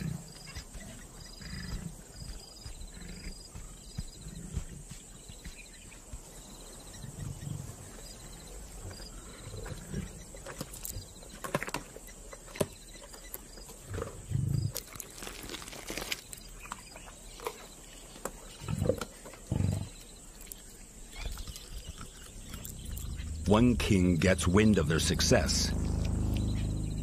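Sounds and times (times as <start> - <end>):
lions growling: 0.0 - 5.0, 6.8 - 11.2, 18.5 - 20.1, 21.0 - 27.0
wet chewing and tearing: 14.5 - 17.7, 20.3 - 23.2.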